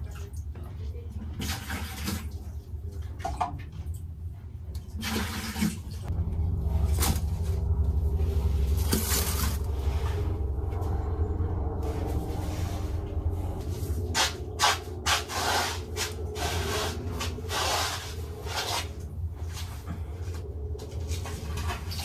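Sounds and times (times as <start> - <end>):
low hum: 5.8 - 22.0.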